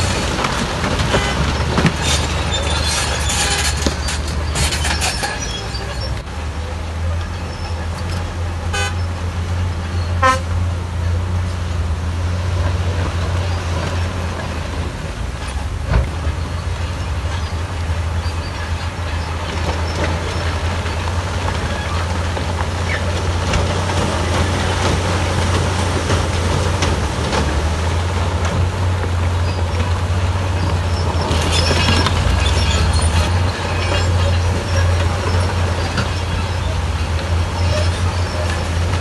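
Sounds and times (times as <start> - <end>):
clattering: 0.0 - 6.1
heavy diesel engines humming: 0.0 - 39.0
vehicle horn toots: 1.1 - 1.5, 8.7 - 9.1, 10.2 - 10.6.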